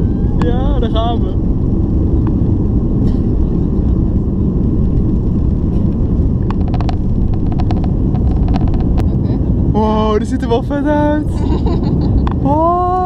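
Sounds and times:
jet engines rumbling at takeoff: 0.0s - 13.0s
light clicks or rattles: 5.8s - 9.1s.

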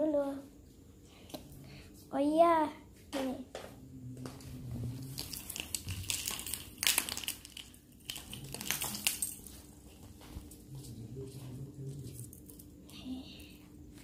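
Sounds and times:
plastic bag crinkling: 5.0s - 10.0s.

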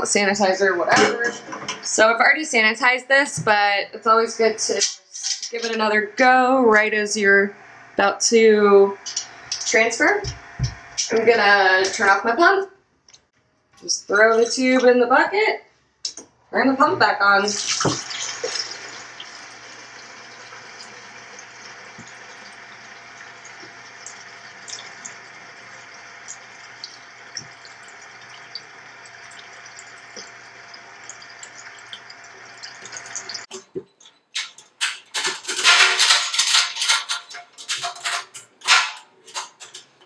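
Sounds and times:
faint pump hum: 16.5s - 33.5s
liquid splashing into bucket: 17.5s - 20.0s
metal lid clanks and clicks: 34.4s - 40.0s.

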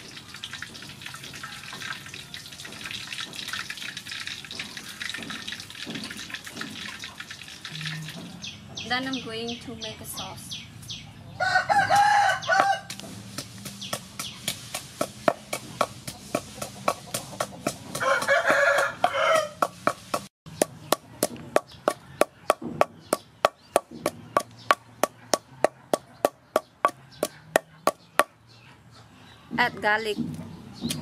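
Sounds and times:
rooster crowing: 11.4s - 12.9s, 18.0s - 19.7s
wooden pestle pounding in mortar: 12.0s - 28.4s.

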